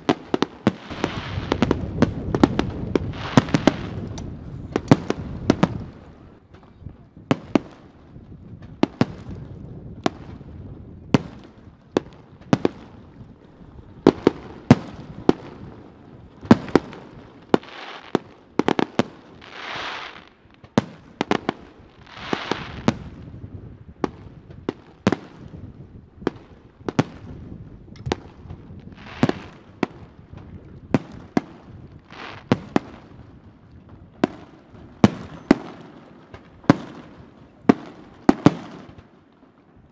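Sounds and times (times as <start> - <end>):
firework shells bursting: 0.0 - 6.1
firework hissing: 0.7 - 5.5, 16.5 - 18.2, 19.4 - 20.3, 22.0 - 22.9, 28.9 - 29.6, 32.1 - 32.6.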